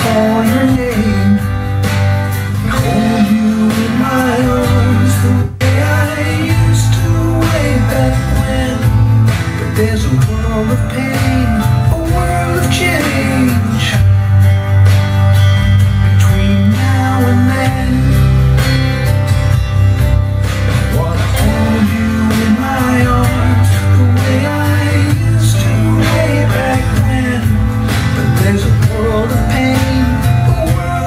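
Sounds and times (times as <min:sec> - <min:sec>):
country song with guitar: 0:00.0 - 0:31.0
steady bass line: 0:00.0 - 0:31.0.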